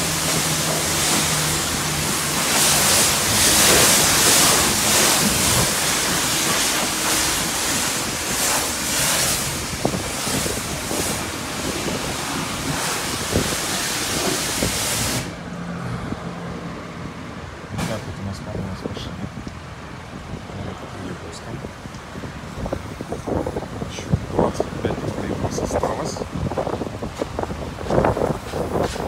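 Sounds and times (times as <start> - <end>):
pressure washer spraying water: 0.0 - 15.8.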